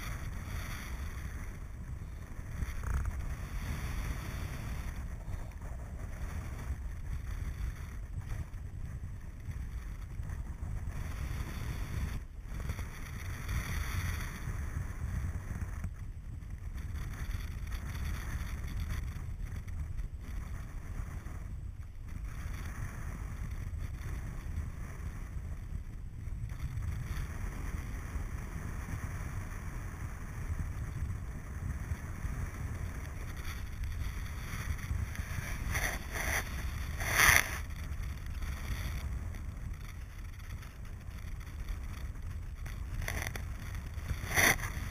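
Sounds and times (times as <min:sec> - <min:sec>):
wind buffeting microphone: 0:00.0 - 0:44.9.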